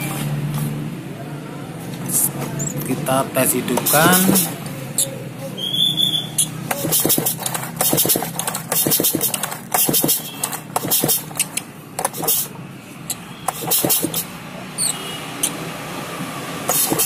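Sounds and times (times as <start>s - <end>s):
chainsaw starter rope pulls: 6.7s - 12.5s, 13.5s - 14.3s.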